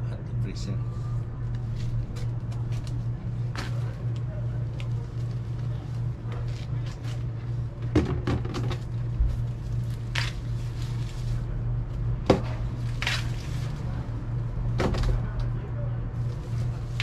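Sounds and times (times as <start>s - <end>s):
steady low hum: 0.0s - 17.0s
corn leaves rustling: 9.2s - 11.5s, 12.7s - 14.1s
corn ears snapping: 10.1s - 10.4s.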